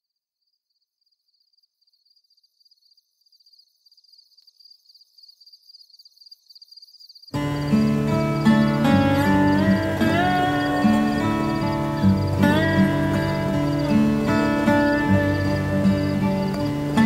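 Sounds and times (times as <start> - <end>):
crickets chirping: 0.1 - 17.0
music: 7.4 - 17.0.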